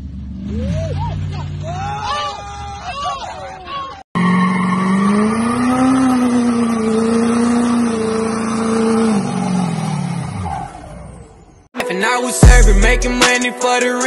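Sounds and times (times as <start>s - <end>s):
tyres squealing on pavement: 0.5s - 8.7s
pickup engine revving high: 4.2s - 11.6s.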